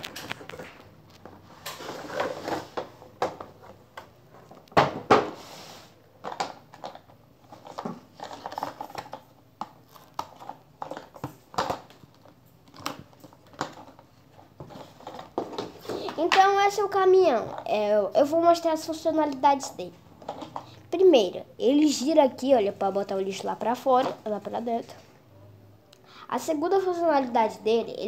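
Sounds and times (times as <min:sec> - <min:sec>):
cardboard and plastic rustling: 0:00.0 - 0:04.7, 0:06.2 - 0:16.8.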